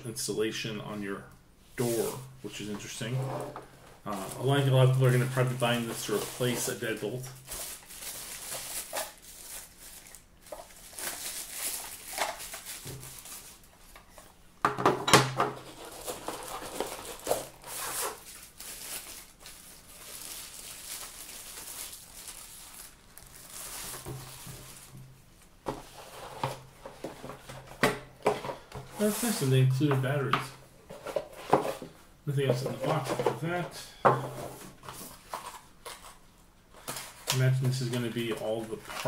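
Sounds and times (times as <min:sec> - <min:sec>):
packaging wrap rustling: 0:01.8 - 0:02.2, 0:04.0 - 0:14.4, 0:15.6 - 0:27.8, 0:28.5 - 0:29.5, 0:34.4 - 0:39.0.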